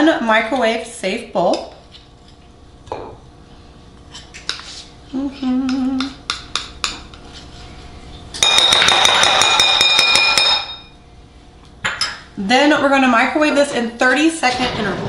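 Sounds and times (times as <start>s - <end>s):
spoon clinking: 8.4s - 11.0s.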